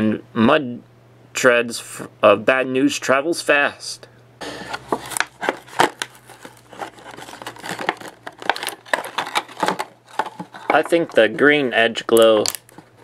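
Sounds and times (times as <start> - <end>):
plastic and cardboard crinkling: 4.5 - 13.0.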